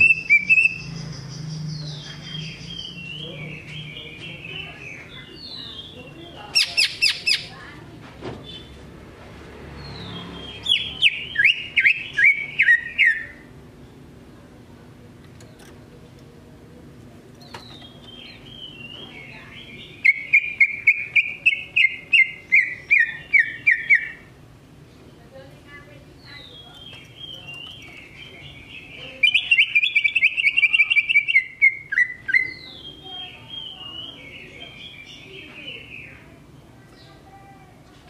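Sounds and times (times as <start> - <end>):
bird singing: 0.0 - 7.6, 9.8 - 14.0, 17.3 - 24.3, 26.1 - 37.3.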